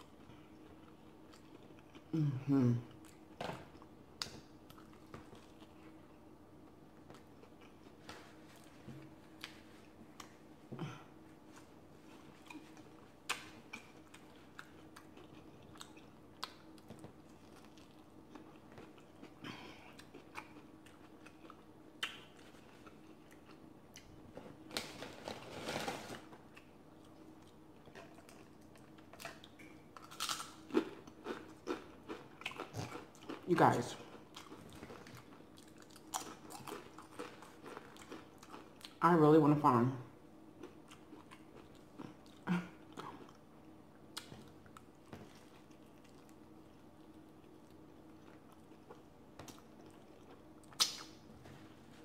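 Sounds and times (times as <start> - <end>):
close chewing and biting: 26.5 - 39.0.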